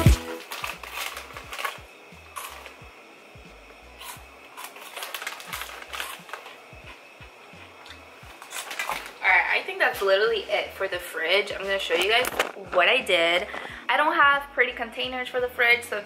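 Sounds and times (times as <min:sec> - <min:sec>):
groceries clicking and knocking: 0:00.0 - 0:02.8, 0:04.0 - 0:09.2, 0:11.6 - 0:13.8
plastic chip bag rustling: 0:00.0 - 0:02.8, 0:04.0 - 0:10.3, 0:11.4 - 0:13.7.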